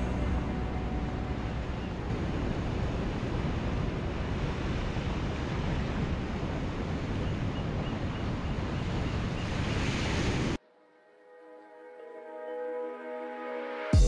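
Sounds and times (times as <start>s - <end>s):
ocean surf breaking on rocks: 0.0s - 10.6s
wind rumble on microphone: 0.0s - 10.6s.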